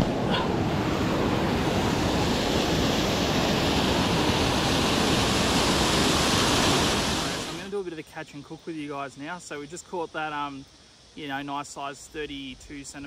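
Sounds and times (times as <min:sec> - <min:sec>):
water rushing over rocks: 0:00.0 - 0:07.6.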